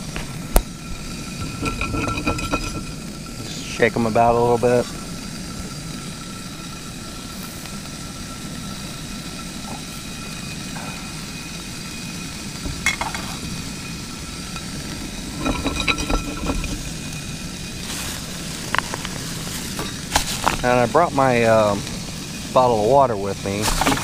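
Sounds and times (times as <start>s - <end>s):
pan knocking and scraping: 0.0s - 3.7s, 12.6s - 13.6s, 14.5s - 20.7s, 23.6s - 24.0s
low burner noise: 0.0s - 24.0s
sausages sizzling in a frying pan: 0.0s - 24.0s.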